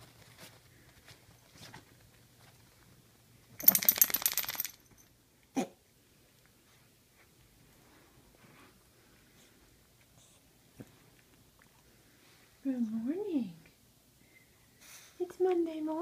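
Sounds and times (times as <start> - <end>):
dog collar jingling: 3.6 - 5.1.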